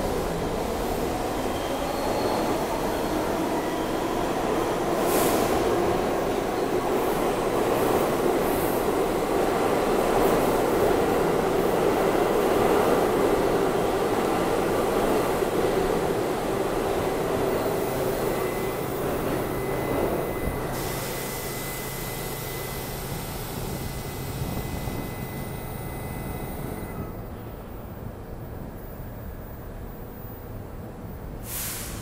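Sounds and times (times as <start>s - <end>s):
subway train wheels rumbling: 0.0s - 32.0s
short hiss: 31.4s - 32.0s.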